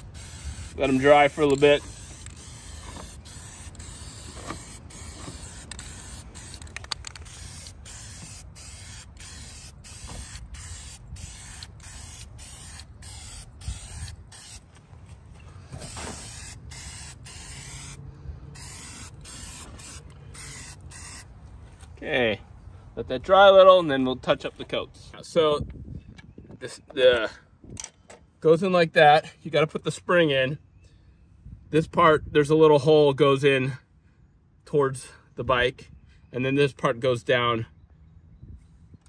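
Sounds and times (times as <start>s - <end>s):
spray paint can hissing: 0.0s - 14.7s, 15.8s - 21.3s.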